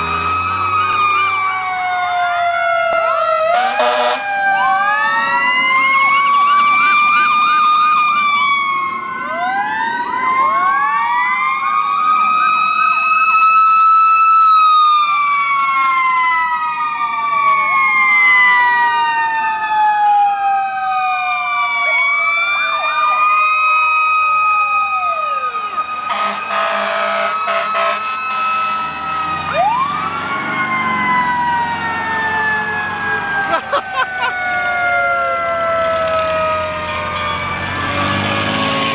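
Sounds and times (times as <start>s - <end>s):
fire truck sirens wailing: 0.0s - 38.9s
horn blast: 3.5s - 4.2s, 26.1s - 28.2s.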